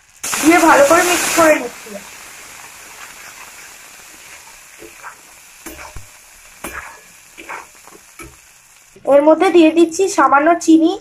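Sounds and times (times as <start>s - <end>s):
spice paste sizzling in a pan: 0.0s - 11.0s
spatula scraping a pan: 3.0s - 8.4s.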